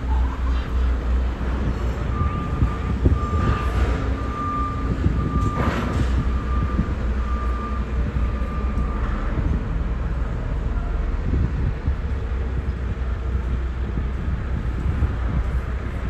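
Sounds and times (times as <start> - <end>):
constant low rumble: 0.0 - 16.0
electronic warning beeps: 2.0 - 9.5.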